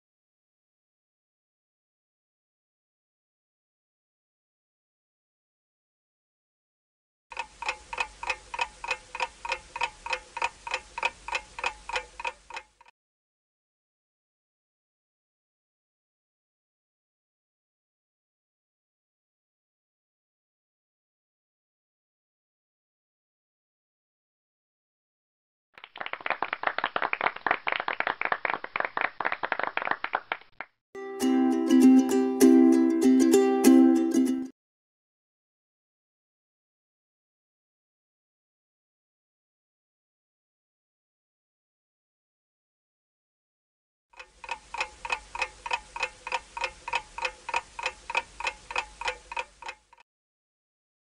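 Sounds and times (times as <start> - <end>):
clock ticking: 7.3 - 12.9, 44.2 - 50.0
small group clapping: 25.8 - 30.7
music: 31.0 - 34.5.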